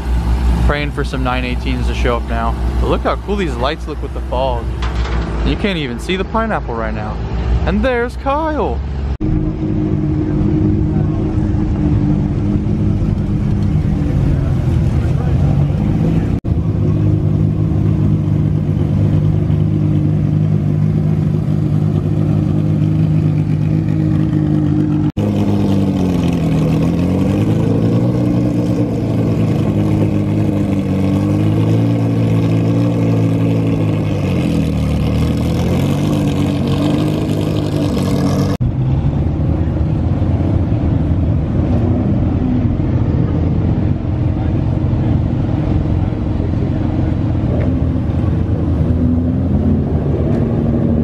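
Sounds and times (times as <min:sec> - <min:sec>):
sports car engine at low revs: 0:00.0 - 0:51.0.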